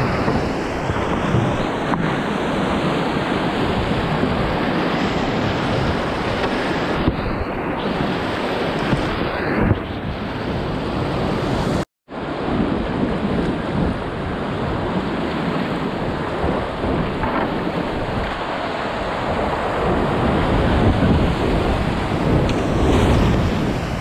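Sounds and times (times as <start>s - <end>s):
whitewater rapids roaring: 15.4s - 24.0s.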